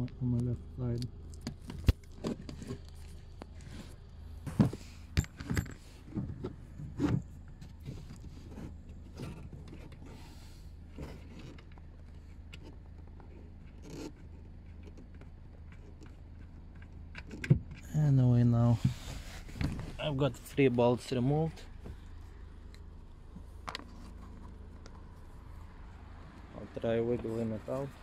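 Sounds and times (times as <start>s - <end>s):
rustling and handling: 18.6s - 25.8s.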